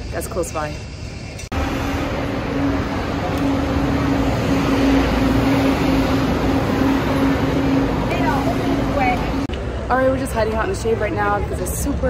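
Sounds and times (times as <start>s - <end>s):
street noise: 0.0s - 12.0s
bus engine humming: 1.4s - 12.0s.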